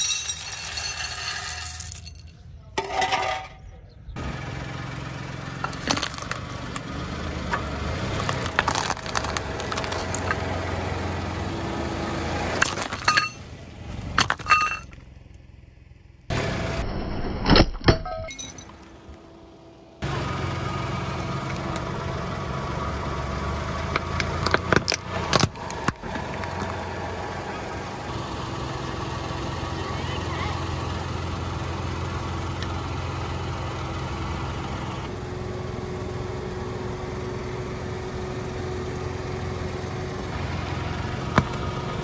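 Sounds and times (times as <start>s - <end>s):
car engine running: 0.0s - 17.0s, 18.4s - 42.0s
seeds crackling under tyre: 5.6s - 6.9s, 7.5s - 10.6s.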